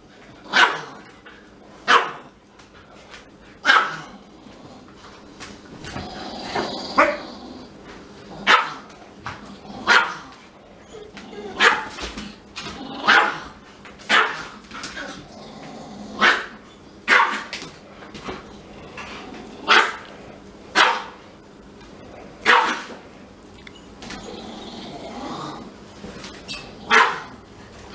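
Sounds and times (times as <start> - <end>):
dog barking: 0.5 - 1.0, 1.9 - 2.3, 3.6 - 4.1, 8.4 - 8.8, 9.8 - 10.3, 11.6 - 12.0, 13.0 - 13.5, 14.1 - 14.5, 16.2 - 17.5, 19.7 - 20.1, 20.8 - 21.2, 22.4 - 22.9, 26.9 - 27.4.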